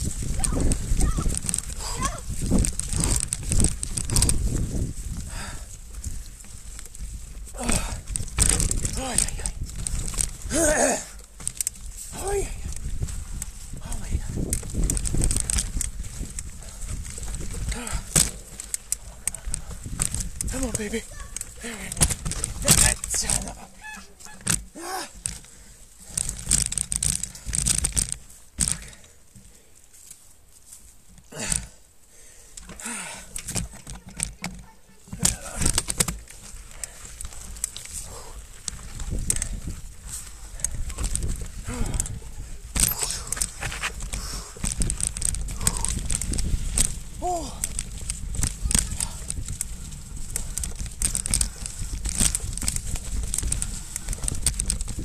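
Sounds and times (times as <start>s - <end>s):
bike rattling over rocks: 0.0s - 55.0s
bike tyres rolling: 0.0s - 55.0s.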